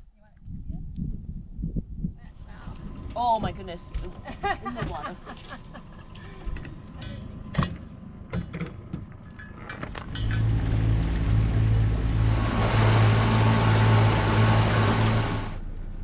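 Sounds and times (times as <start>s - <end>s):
outboard motor running: 10.4s - 15.6s.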